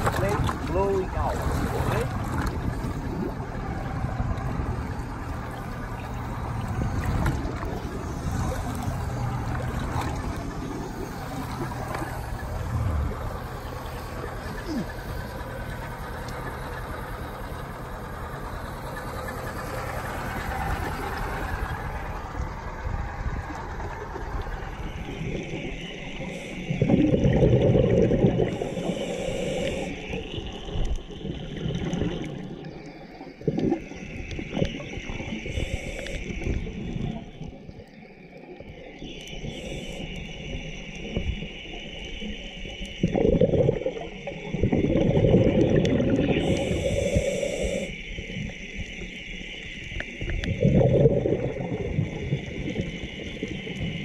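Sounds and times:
exhaled bubbles gushing: 0.0 - 54.0
waves at sea surface: 0.0 - 54.0
scuba regulator inhale hiss: 28.5 - 30.1, 35.4 - 36.5, 46.4 - 48.0.

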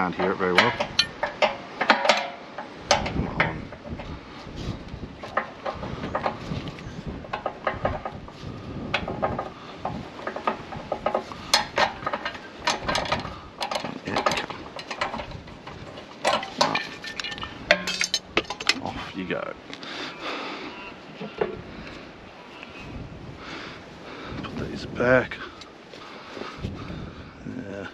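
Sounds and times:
metal spanner clinking: 0.0 - 3.5, 10.3 - 18.8
wind rumble on microphone: 0.0 - 19.7, 20.8 - 27.9.

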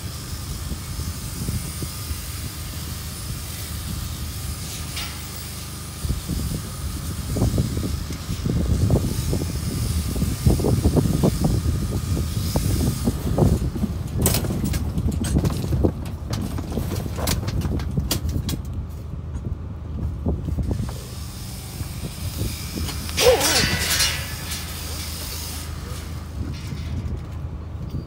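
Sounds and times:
electric shearing handpiece running: 20.7 - 26.2.

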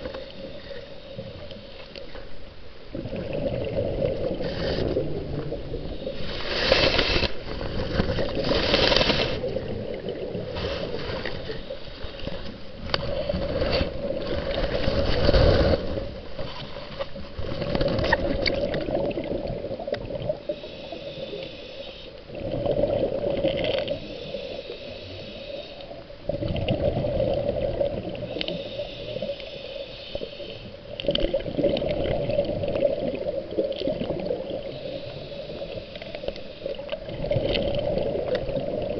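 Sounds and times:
water swirling and bubbling underwater: 0.0 - 38.9.

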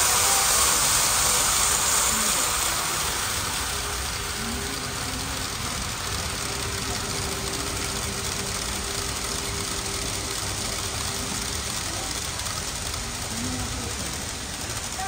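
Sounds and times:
faint hum: 0.0 - 15.0
model train rumbling on track: 0.0 - 15.0
shop background noise: 0.0 - 15.0.

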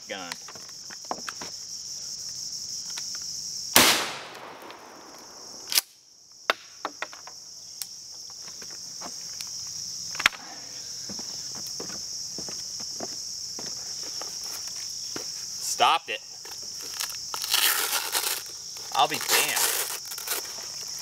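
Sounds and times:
insects buzzing: 0.0 - 21.0
shotgun shot with echo: 3.8 - 5.7
sharp cracks: 3.8 - 6.8.

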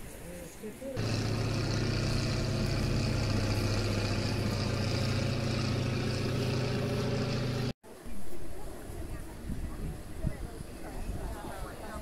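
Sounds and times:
aircraft engine drone: 1.0 - 7.7.

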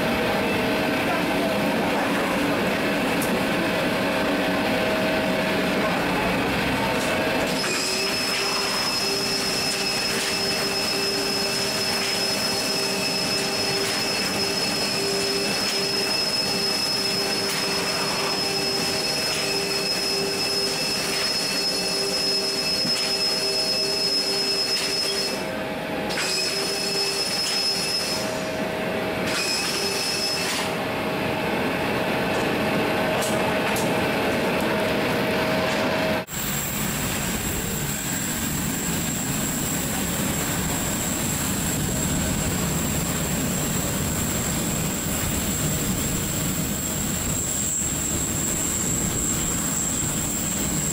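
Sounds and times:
machinery hum and whine: 0.0 - 50.9.

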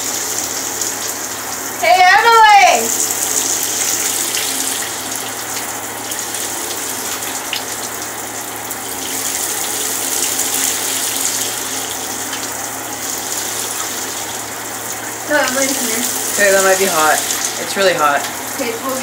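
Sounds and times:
shower spray into bathtub: 12.2 - 19.0.

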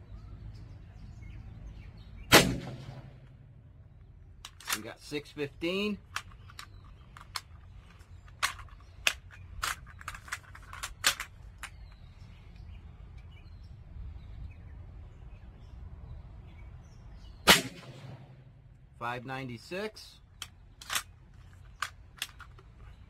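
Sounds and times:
air pistol shot: 2.3 - 3.2, 17.4 - 18.5.

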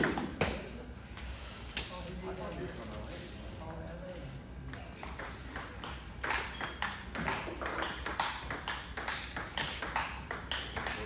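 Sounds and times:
table tennis balls clicking: 5.0 - 11.0.

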